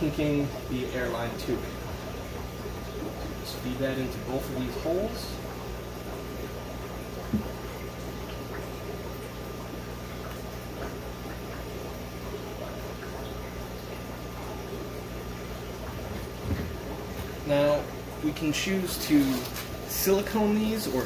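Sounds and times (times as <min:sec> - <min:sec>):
low electrical hum: 0:00.0 - 0:21.0
water trickling: 0:00.0 - 0:21.0.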